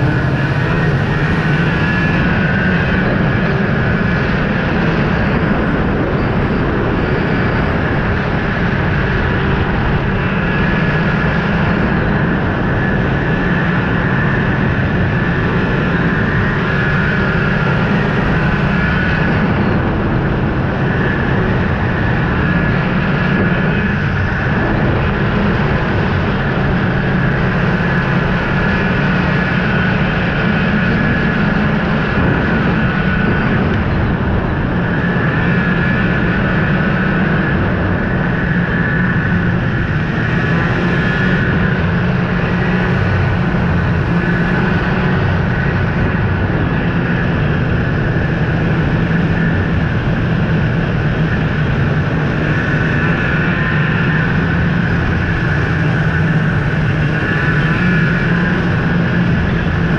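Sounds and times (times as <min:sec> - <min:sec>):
snowmobile engine running: 0:00.0 - 0:59.9.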